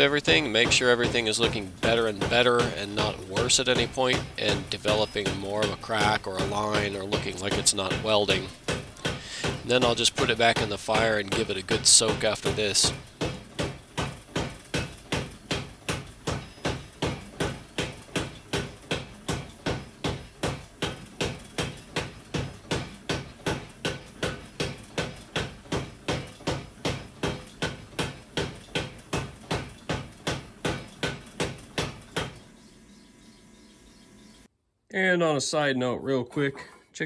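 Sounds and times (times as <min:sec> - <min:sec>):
power hammer pounding metal: 0:00.0 - 0:32.4.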